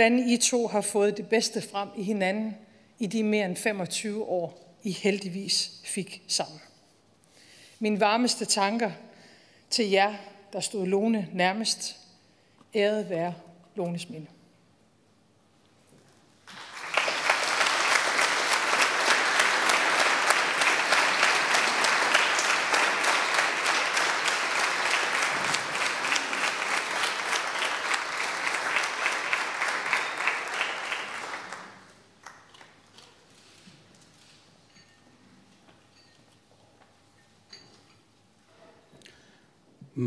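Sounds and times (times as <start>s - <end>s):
audience applauding: 16.4s - 32.7s.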